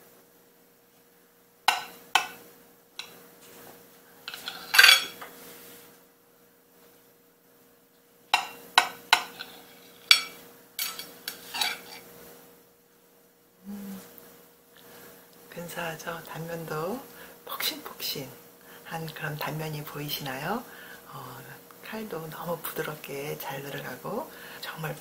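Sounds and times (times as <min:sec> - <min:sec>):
faint steady hum: 0:00.0 - 0:25.0
knife clinking on ceramic plate: 0:01.7 - 0:02.4, 0:04.3 - 0:05.2, 0:08.4 - 0:12.0.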